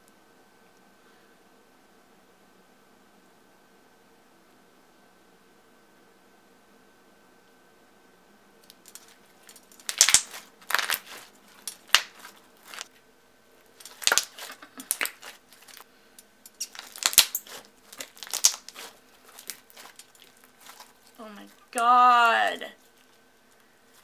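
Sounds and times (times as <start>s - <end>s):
slime squeezed popping: 8.9s - 12.9s, 13.8s - 15.8s, 16.6s - 20.9s.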